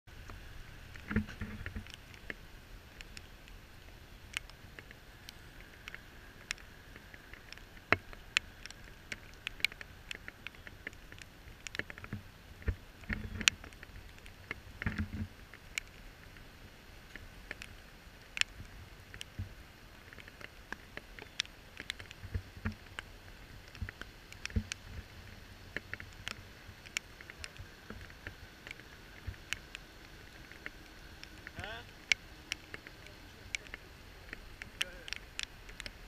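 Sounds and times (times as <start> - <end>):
creek rushing: 0.1 - 36.0
sharp ticks: 0.2 - 16.5, 17.1 - 36.0.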